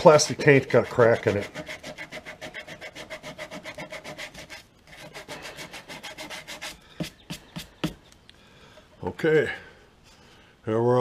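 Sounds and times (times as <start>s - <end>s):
emery cloth sanding plastic: 0.5s - 8.0s.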